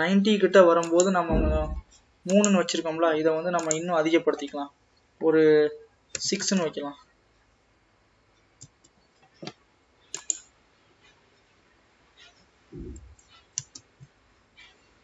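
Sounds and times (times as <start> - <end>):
computer mouse and keyboard clicks: 0.8 - 2.8, 3.6 - 3.9, 8.6 - 10.5, 12.2 - 14.7
dull low thump: 1.3 - 2.0, 12.8 - 13.2.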